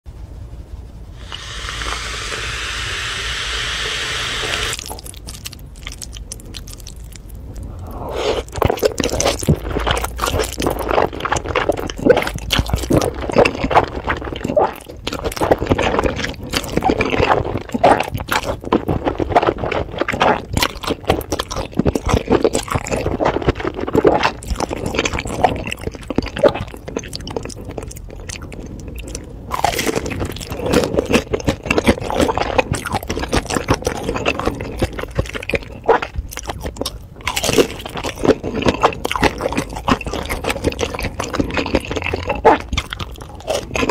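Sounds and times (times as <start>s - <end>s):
steady hiss: 0.7s - 4.8s
wet chewing and slurping: 1.1s - 43.9s
crunchy chewing clicks: 1.2s - 43.9s.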